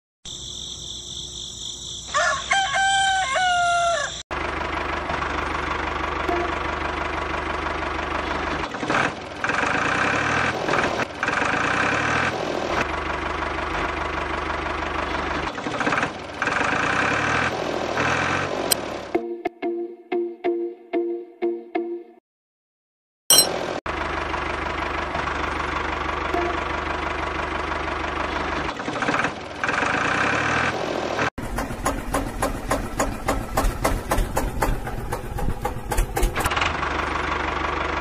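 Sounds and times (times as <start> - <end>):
rooster crowing: 2.1 - 4.2.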